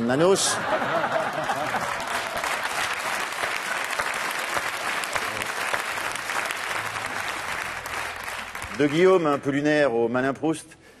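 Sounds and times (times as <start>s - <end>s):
audience applauding: 0.9s - 9.6s.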